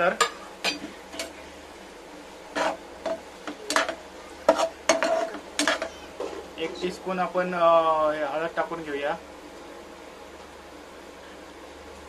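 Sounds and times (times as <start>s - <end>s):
spatula scraping a frying pan: 2.5s - 6.5s.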